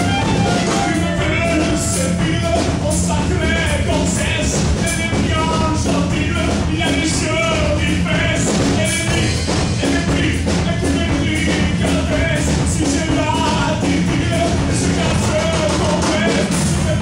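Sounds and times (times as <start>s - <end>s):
melodic lead line: 0.0s - 3.6s
drums keeping a steady beat: 0.0s - 17.0s
upright double bass: 0.0s - 17.0s.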